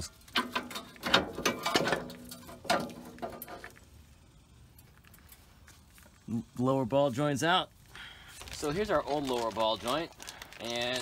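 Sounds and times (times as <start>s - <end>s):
metal clinks and rattles: 0.0s - 6.1s.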